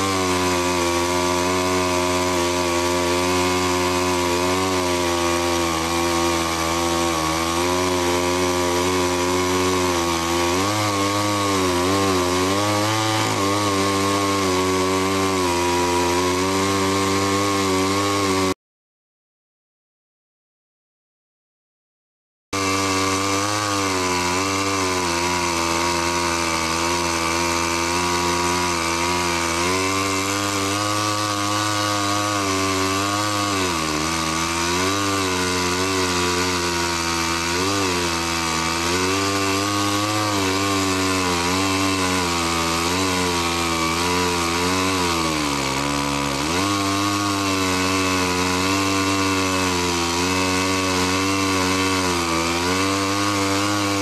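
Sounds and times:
chainsaw cutting log: 0:00.0 - 0:18.6, 0:22.6 - 0:54.0.

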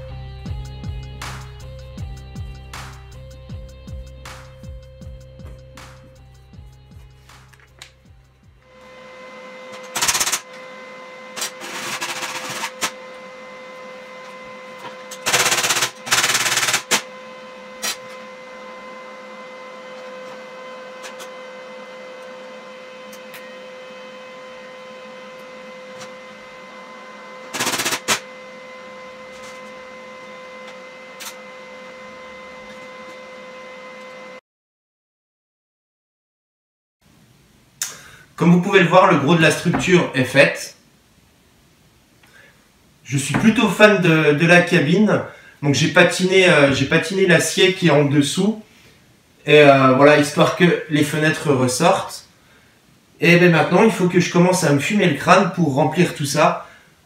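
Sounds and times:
welding machine hum: 0:05.8 - 0:34.4
welding arc bursts: 0:08.7 - 0:13.3, 0:15.0 - 0:18.2, 0:27.4 - 0:28.3.

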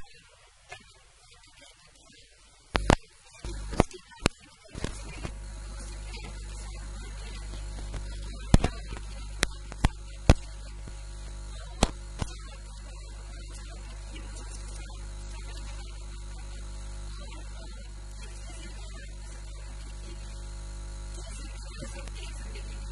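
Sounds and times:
electrical mains hum: 0:02.6 - 0:22.9
sharp clicks: 0:02.8 - 0:04.0, 0:07.4 - 0:12.4.

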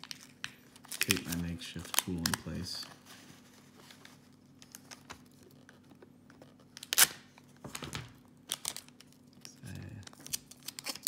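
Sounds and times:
loud crinkling rip of tape: 0:00.0 - 0:02.7, 0:06.5 - 0:07.4, 0:08.4 - 0:09.5, 0:10.1 - 0:11.0.

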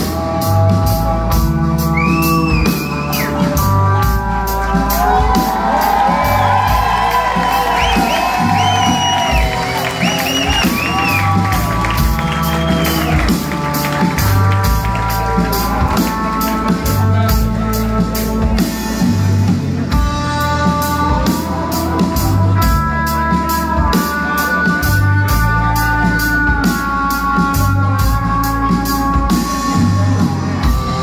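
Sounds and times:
rock band playing live: 0:00.0 - 0:31.0
crowd whooping and whistling: 0:01.9 - 0:03.6, 0:04.6 - 0:13.5.

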